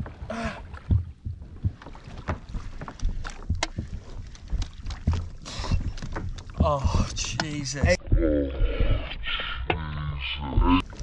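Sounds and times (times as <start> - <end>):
water slapping against kayak hull: 0.0 - 8.1, 10.7 - 11.0.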